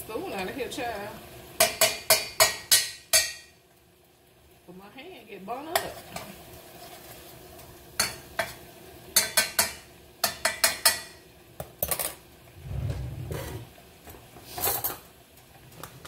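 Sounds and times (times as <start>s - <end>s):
dull low rumble: 12.6s - 13.6s.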